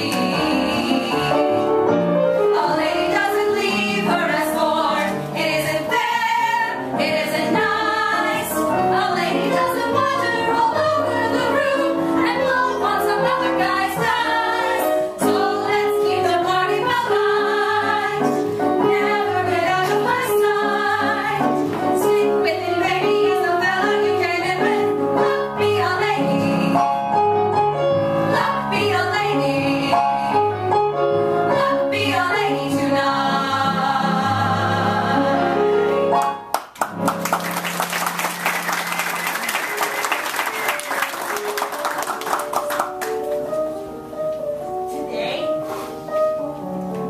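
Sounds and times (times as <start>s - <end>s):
women singing in harmony: 0.0s - 27.2s, 28.2s - 36.0s
piano accompaniment: 0.0s - 47.0s
audience applause: 36.5s - 43.2s.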